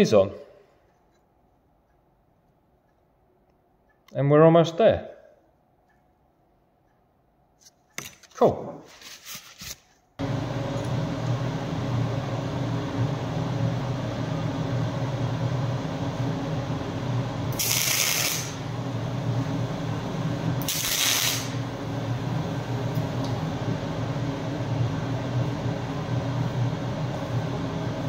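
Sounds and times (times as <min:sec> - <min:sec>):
steady low hum: 0:10.2 - 0:28.0
welding crackling hiss: 0:17.5 - 0:18.6, 0:20.6 - 0:21.6.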